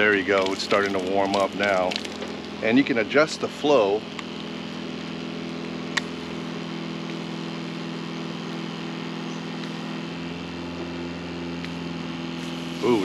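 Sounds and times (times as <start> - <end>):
water pump motor hum: 0.0 - 13.0
hiss of flowing water: 12.3 - 13.0.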